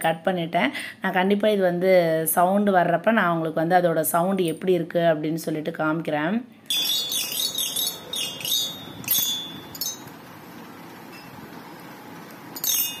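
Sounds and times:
toy xylophone notes: 0:06.7 - 0:10.1.

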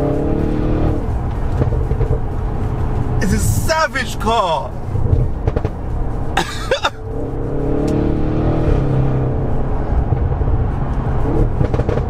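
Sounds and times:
car engine and exhaust drone: 0:00.0 - 0:12.0
cough-like voice burst: 0:06.4 - 0:07.0.

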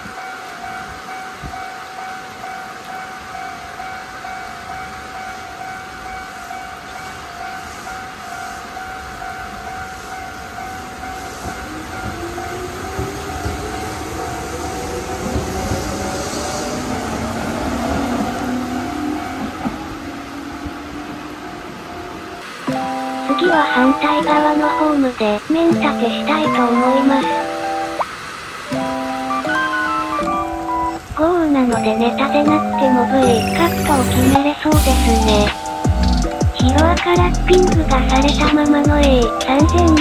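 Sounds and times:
heavy rain hissing: 0:06.3 - 0:40.0
high electrical tone: 0:33.2 - 0:36.9.

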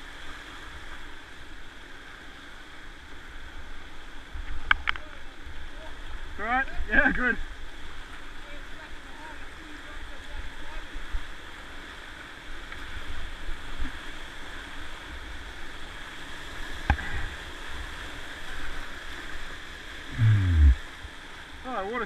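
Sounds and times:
whitewater rushing: 0:15.4 - 0:21.4
low sound falling in pitch: 0:20.1 - 0:20.8.

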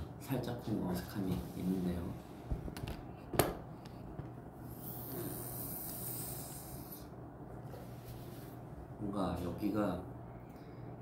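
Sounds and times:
soft breathy hiss: 0:04.7 - 0:07.2.

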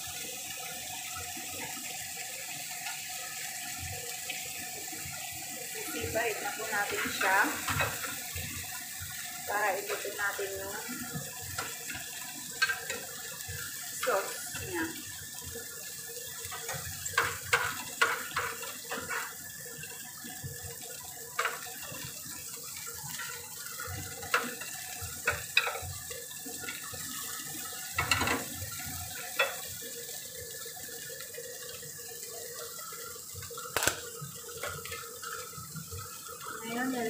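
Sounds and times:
tongs clicking against a frying pan: 0:12.5 - 0:13.1, 0:16.4 - 0:19.4, 0:24.2 - 0:25.9.

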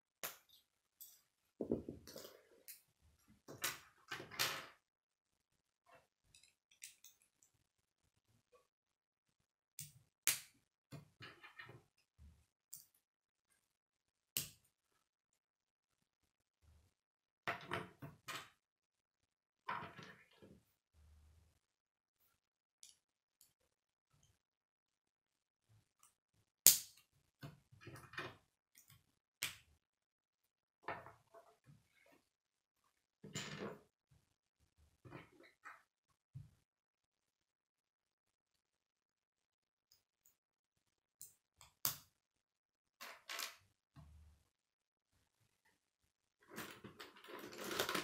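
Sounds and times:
plastic pieces snapping together: 0:26.6 - 0:27.0.

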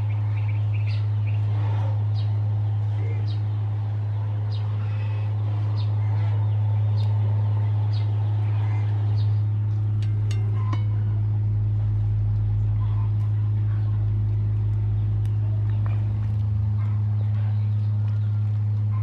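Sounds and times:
bird chirping: 0:00.0 - 0:01.5
steady low hum: 0:00.0 - 0:19.0.

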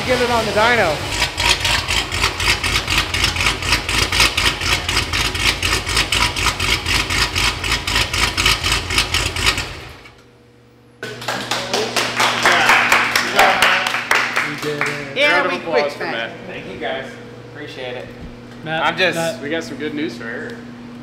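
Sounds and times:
car engine idling: 0:00.0 - 0:10.1.

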